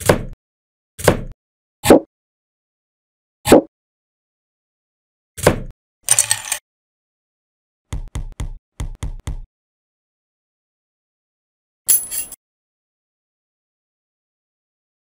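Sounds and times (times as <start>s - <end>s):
plastic pieces clattering: 6.1s - 6.6s.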